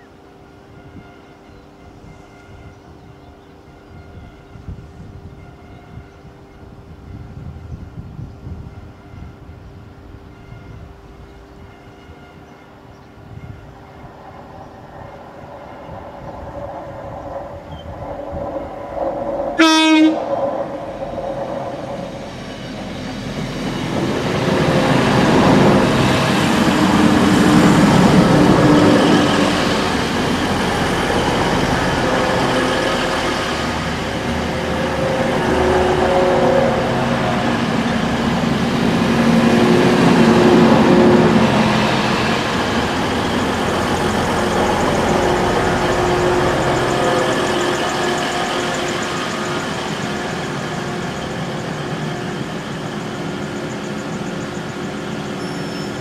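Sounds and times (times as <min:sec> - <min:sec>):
diesel train engines passing: 0:00.0 - 0:56.0
train wheels on rails: 0:06.0 - 0:56.0
train horn blast: 0:19.6 - 0:20.4, 0:24.4 - 0:38.2, 0:39.0 - 0:42.4, 0:44.2 - 0:50.6.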